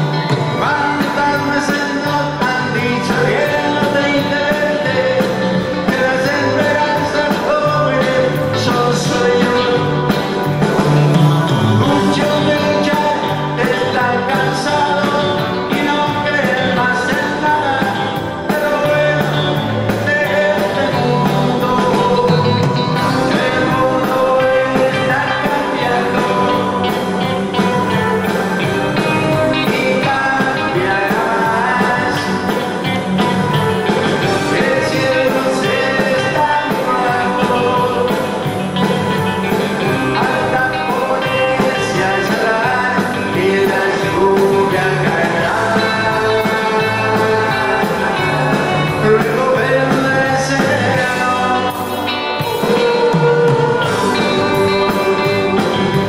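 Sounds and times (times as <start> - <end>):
band playing pop-rock ballad: 0.0 - 56.0
man singing: 0.0 - 56.0.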